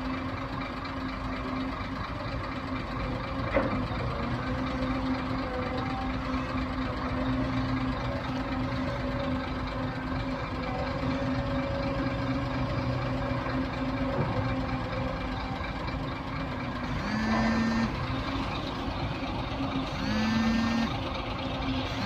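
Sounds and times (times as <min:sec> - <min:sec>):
diesel engines running: 0:00.0 - 0:22.0
warning horn tone: 0:16.8 - 0:18.0, 0:19.9 - 0:21.0.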